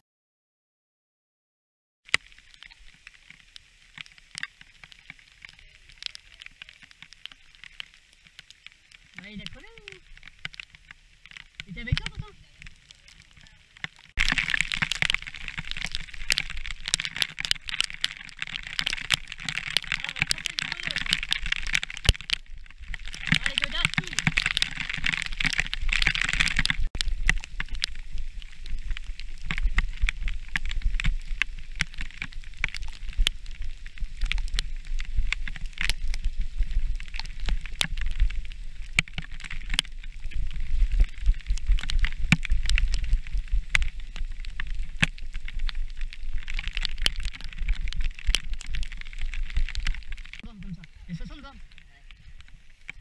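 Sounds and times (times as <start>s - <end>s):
tyres hissing on wet ground: 2.1s - 53.0s
wind rumble on microphone: 18.8s - 53.0s.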